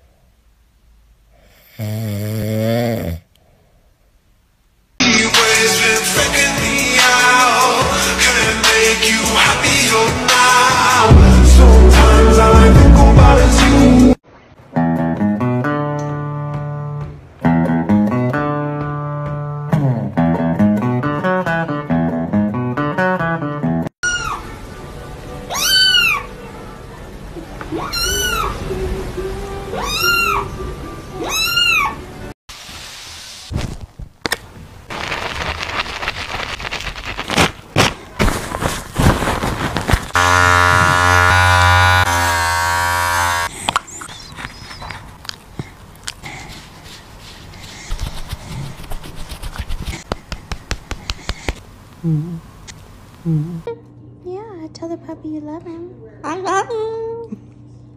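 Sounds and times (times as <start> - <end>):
guitar music: 14.7 - 23.9
tissue rubbing on fur: 34.9 - 40.2, 46.4 - 51.6
electric trimmer buzzing: 40.1 - 43.6.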